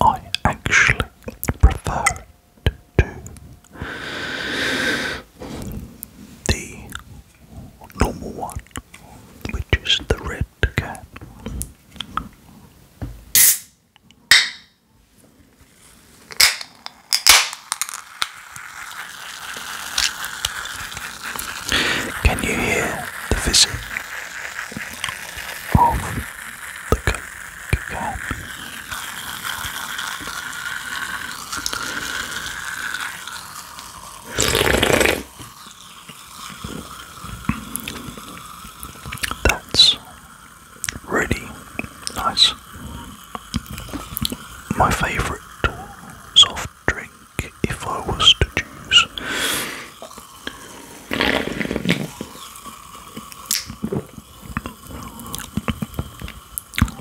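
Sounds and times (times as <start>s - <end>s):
slurping sip: 3.0s - 9.2s, 18.0s - 57.0s
soda fizzing in can: 16.4s - 57.0s
mouth clicks: 34.3s - 35.3s, 39.0s - 40.1s, 40.8s - 52.5s, 53.1s - 53.9s, 54.5s - 57.0s
swallowing: 34.3s - 35.3s, 47.4s - 57.0s.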